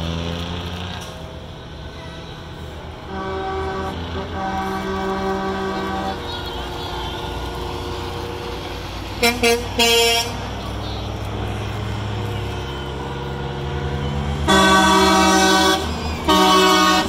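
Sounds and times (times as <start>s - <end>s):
truck diesel engine rumbling: 0.0s - 17.0s
truck air horn blasts: 2.1s - 8.1s, 9.1s - 11.2s, 14.4s - 17.0s.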